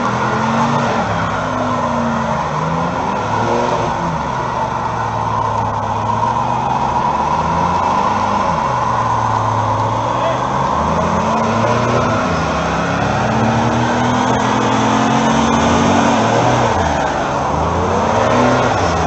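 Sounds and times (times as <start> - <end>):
car engine revving: 0.0 - 19.0.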